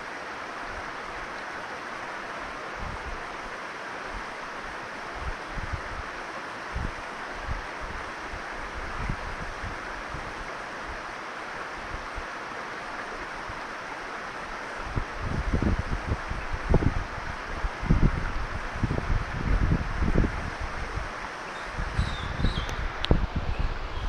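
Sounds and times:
stream flowing over rocks: 0.0s - 24.0s
wind buffeting microphone: 5.2s - 6.1s, 6.7s - 10.5s, 14.8s - 24.0s.

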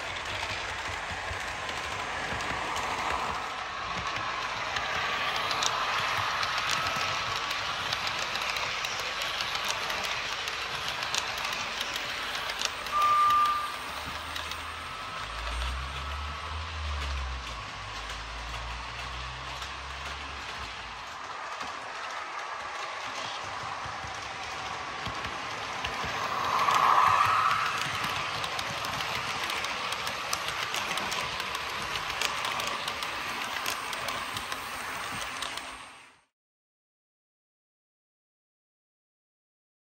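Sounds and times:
model train wheels rattling: 0.0s - 36.1s
steady high tone: 12.7s - 16.8s, 24.5s - 29.9s.

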